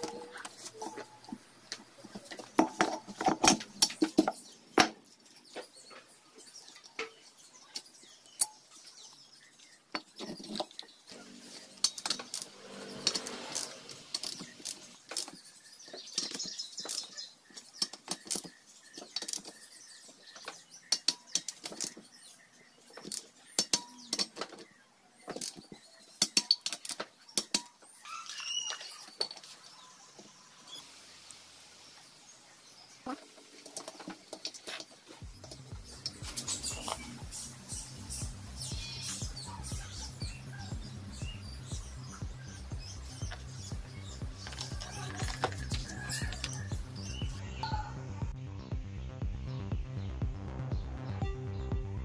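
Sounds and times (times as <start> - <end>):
metal parts and tools clinking: 25.3 - 27.8, 28.9 - 29.6.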